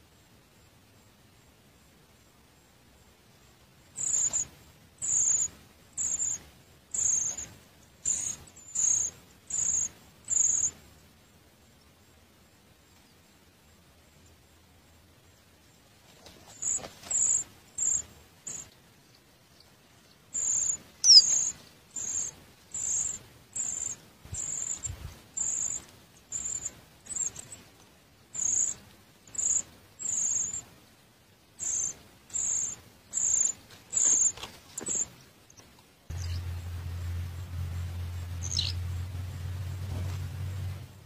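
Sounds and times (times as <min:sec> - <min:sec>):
high-pitched squeaky bird calls: 0:04.0 - 0:10.7, 0:20.4 - 0:27.5, 0:28.4 - 0:30.6, 0:31.6 - 0:35.1, 0:36.1 - 0:36.5, 0:38.4 - 0:38.8.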